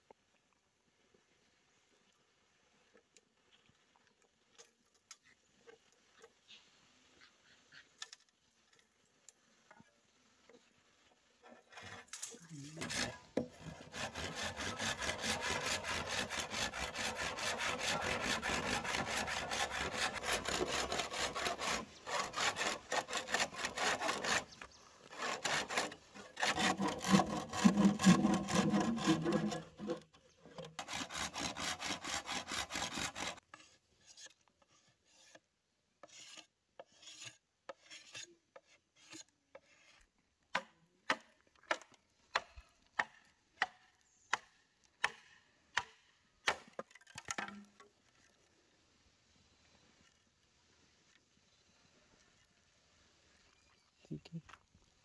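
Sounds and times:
hand tool rasping bamboo: 11.4 - 47.8.

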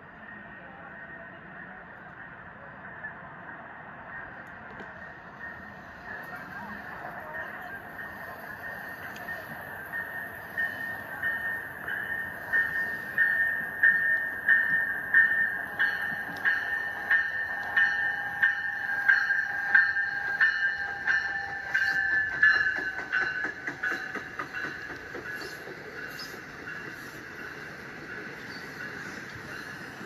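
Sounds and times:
wheels clicking over track joints: 20.9 - 26.4.

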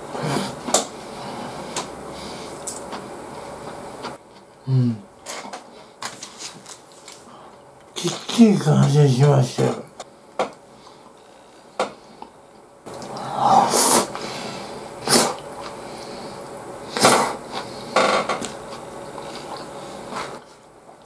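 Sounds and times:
person slurping and eating: 12.9 - 14.2, 15.0 - 15.8.

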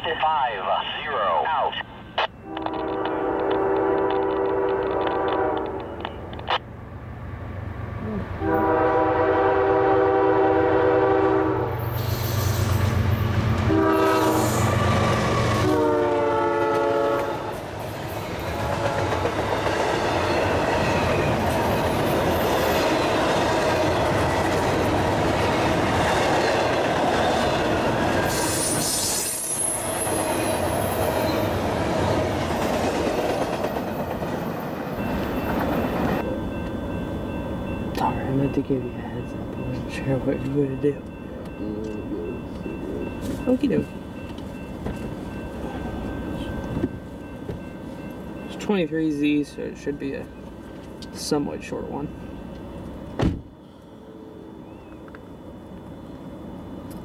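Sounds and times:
locomotive horn blasts: 2.4 - 6.0, 8.4 - 11.8, 13.7 - 14.6, 15.6 - 17.5
train wheels clattering on rails: 2.6 - 6.5, 16.6 - 48.8.

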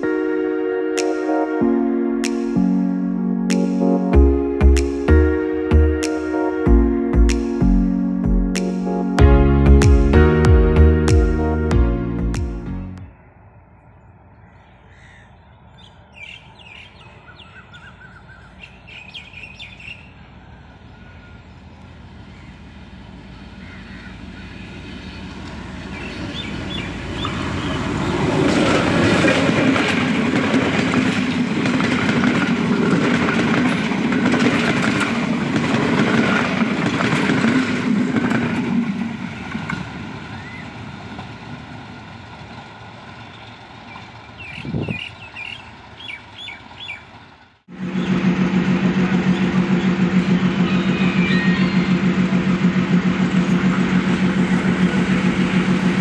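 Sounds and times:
diesel train rumbling past: 0.0 - 56.0
birds chirping: 13.2 - 28.7, 43.2 - 56.0
wheels clattering over rail joints: 21.8 - 56.0.

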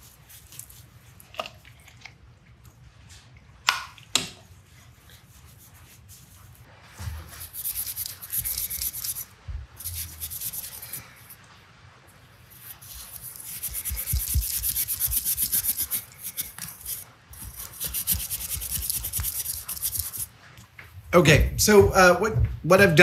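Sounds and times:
steel wool scrubbing metal: 7.0 - 11.3, 12.5 - 20.3.

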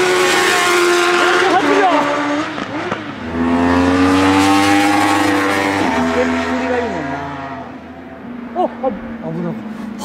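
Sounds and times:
motorcycle engine revving: 0.0 - 7.7.

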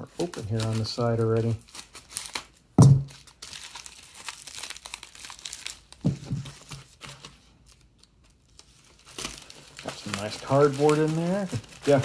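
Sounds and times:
bubble mailers rustling: 0.0 - 12.0
sharp thump: 2.8 - 3.1.

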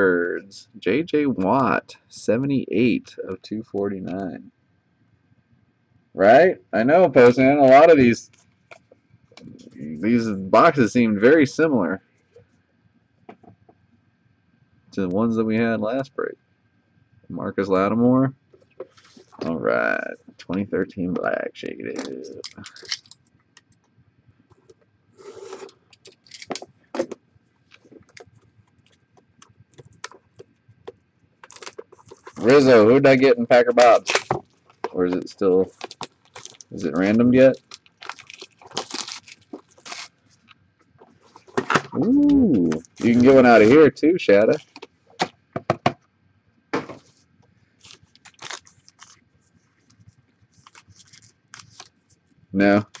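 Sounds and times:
foil pack crinkling: 21.9 - 23.2, 25.2 - 26.7, 31.4 - 41.6, 42.8 - 43.8, 47.8 - 53.0.

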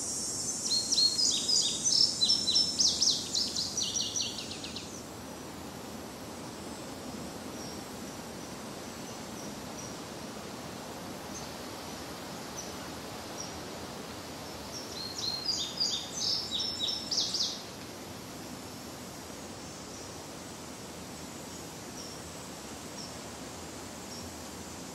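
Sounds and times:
songbird singing: 0.0 - 5.1, 6.4 - 10.1, 11.2 - 17.8
soft outdoor hiss: 0.0 - 24.9.

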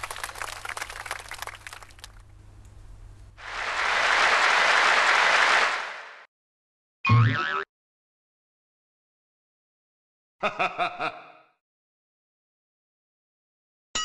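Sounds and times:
crowd applause: 0.0 - 2.2, 3.4 - 6.3.

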